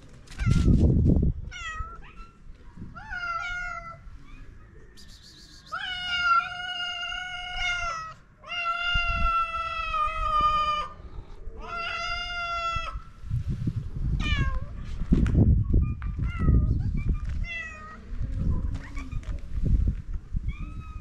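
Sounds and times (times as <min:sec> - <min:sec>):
low rustling noise: 0:13.1 - 0:21.0
cat meowing: 0:14.2 - 0:14.8, 0:20.4 - 0:21.0.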